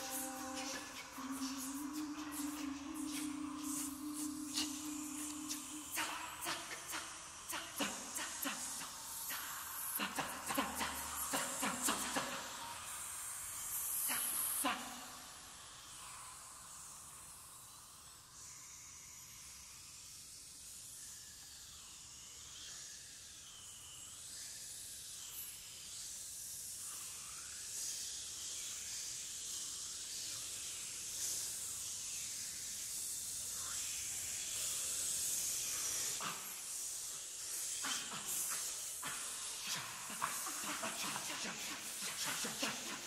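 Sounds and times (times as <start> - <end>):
high sliding vocal glides: 0.0 - 15.3, 35.0 - 43.0
choir breathy hissing: 0.0 - 21.0, 26.7 - 43.0.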